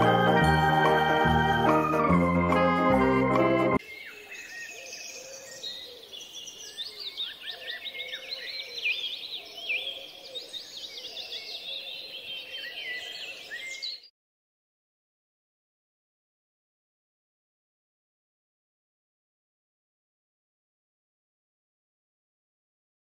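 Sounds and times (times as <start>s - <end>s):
organ-like music: 0.0s - 3.8s
small birds chirping: 3.8s - 14.1s.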